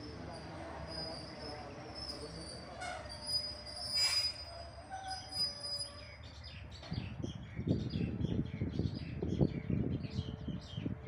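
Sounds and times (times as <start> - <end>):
high train wheel squeal: 0.0 - 6.3
low train rumble: 0.0 - 11.0.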